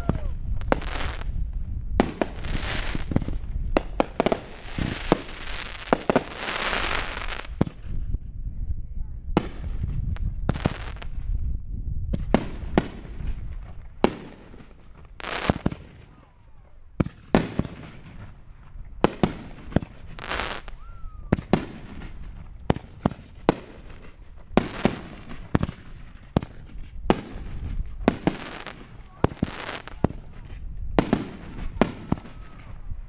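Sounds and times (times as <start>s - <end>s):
fireworks crackling: 0.0s - 7.9s, 9.4s - 11.2s, 12.2s - 33.0s
fireworks bangs and pops: 0.0s - 8.0s, 9.4s - 11.3s, 12.1s - 16.2s, 17.0s - 33.0s.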